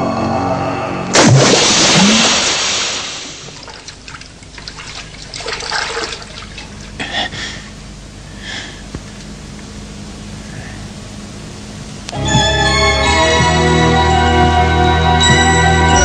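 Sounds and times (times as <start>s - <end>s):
loud splash into water: 1.1s - 6.6s
water trickling and splashing: 1.6s - 7.0s.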